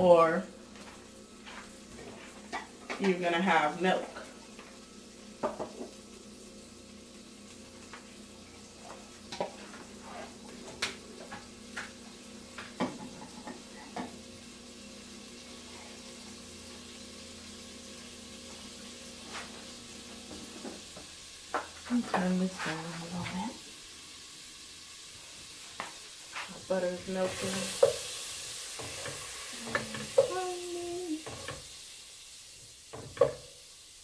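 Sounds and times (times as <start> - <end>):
butter sizzling and crackling: 0.0 - 34.0.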